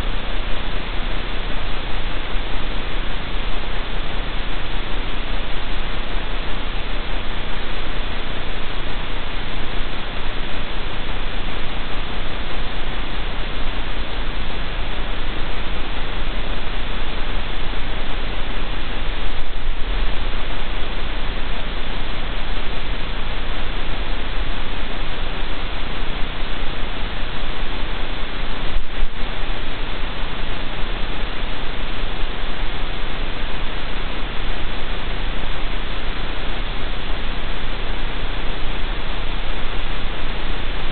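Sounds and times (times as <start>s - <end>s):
static hiss: 0.0s - 40.9s.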